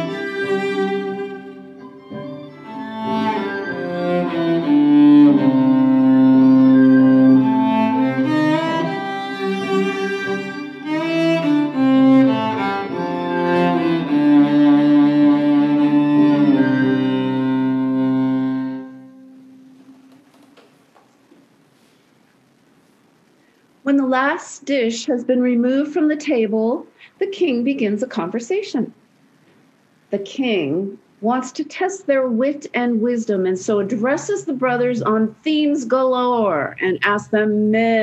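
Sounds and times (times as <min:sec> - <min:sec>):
solo violin melody: 0:00.0 - 0:19.7.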